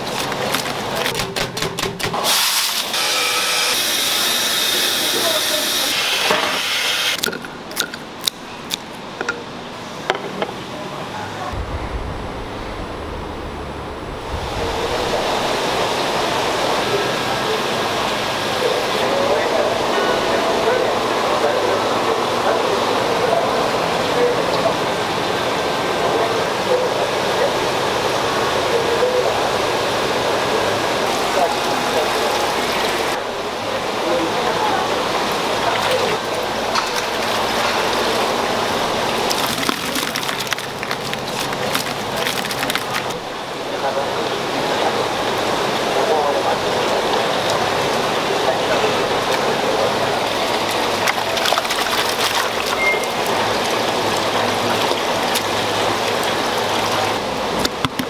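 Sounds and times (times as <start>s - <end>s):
water splashing and bubbling: 0.0s - 1.5s, 35.2s - 43.8s, 46.6s - 58.0s
indoor market ambience hiss: 0.0s - 58.0s
wind buffeting microphone: 11.5s - 16.3s.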